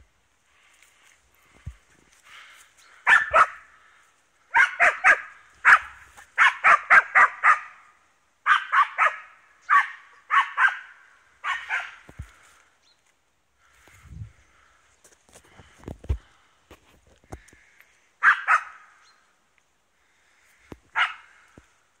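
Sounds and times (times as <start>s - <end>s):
dog barking sharply: 3.0s - 3.6s, 4.5s - 7.8s, 8.5s - 12.0s, 18.2s - 18.9s, 21.0s - 21.3s.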